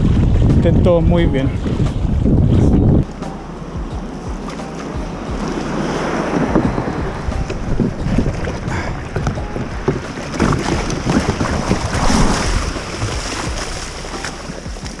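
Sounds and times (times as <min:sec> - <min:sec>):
wind rumbling on microphone: 0:00.0 - 0:15.0
waves breaking on pebble shore: 0:09.9 - 0:15.0.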